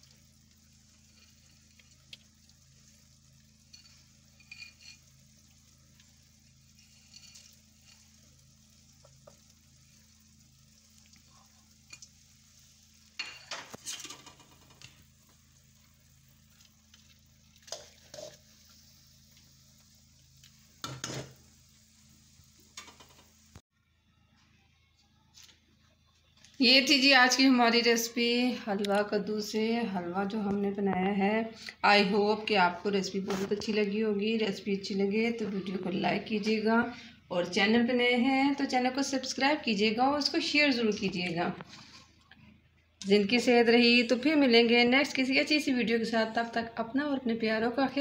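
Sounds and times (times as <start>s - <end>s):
spoon scraping and clinking in pan: 3.6s - 5.3s, 6.7s - 8.2s, 13.2s - 14.6s, 17.6s - 18.7s.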